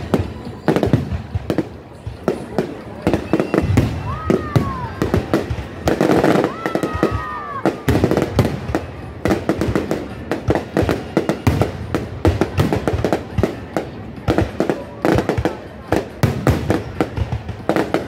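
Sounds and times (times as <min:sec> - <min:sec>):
fireworks bangs and crackles: 0:00.0 - 0:18.0.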